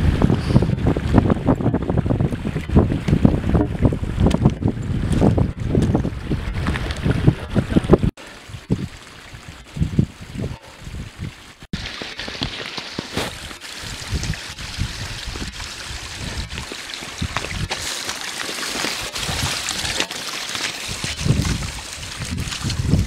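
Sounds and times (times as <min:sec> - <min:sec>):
stream trickling over stones: 0:08.2 - 0:23.0.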